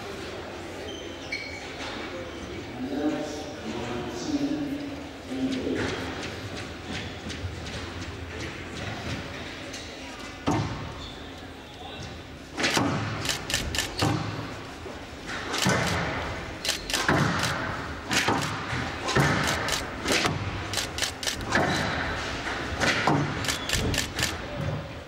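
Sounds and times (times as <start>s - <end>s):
rackets striking squash ball: 12.5s - 13.2s, 13.9s - 14.5s, 15.2s - 20.7s, 21.4s - 24.3s
ball hitting walls: 17.0s - 20.7s.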